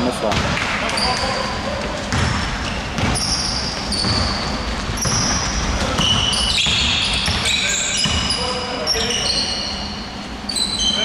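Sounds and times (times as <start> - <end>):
sneakers squeaking: 0.0 - 11.0
basketball bouncing on hardwood: 2.1 - 8.3.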